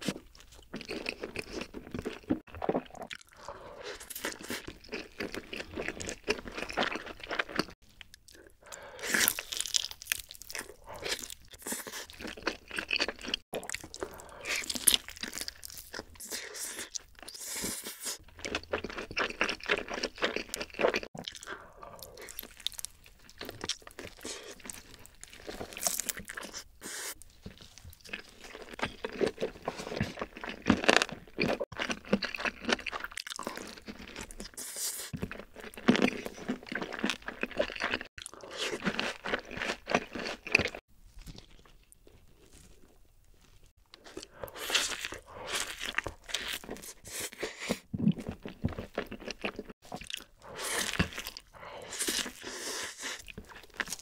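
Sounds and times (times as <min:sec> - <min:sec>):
chewing crunchy chicken: 0:00.0 - 0:54.0.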